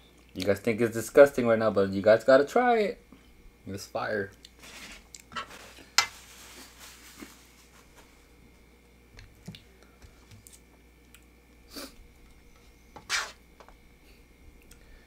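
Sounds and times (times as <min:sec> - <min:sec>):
fork scraping on pan: 0:13.0 - 0:13.4.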